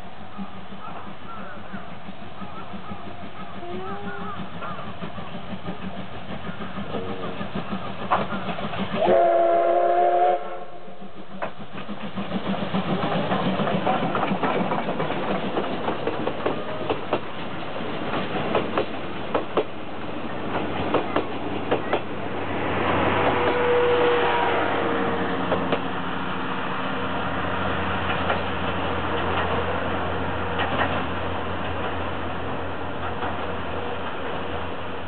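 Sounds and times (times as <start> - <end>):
steam locomotive passing: 0.0 - 35.0
wheels clicking over rail joints: 0.2 - 9.1, 11.2 - 22.2, 27.7 - 34.5
steam whistle: 9.0 - 11.0, 23.4 - 24.7.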